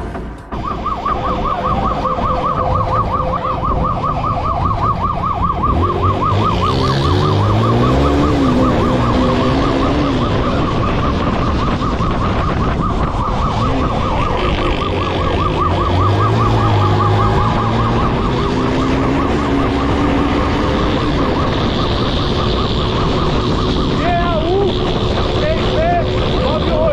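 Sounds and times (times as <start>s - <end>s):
vehicle engine: 0.0s - 26.9s
siren yelping: 0.4s - 26.9s.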